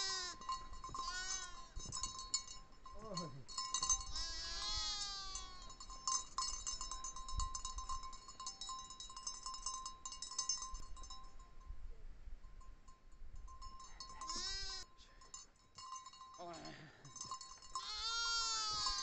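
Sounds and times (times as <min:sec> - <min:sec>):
sheep bleating: 0:00.0 - 0:00.4, 0:01.0 - 0:01.6, 0:04.1 - 0:05.7, 0:14.3 - 0:14.9, 0:17.8 - 0:19.0
livestock bells clinking: 0:00.0 - 0:19.0.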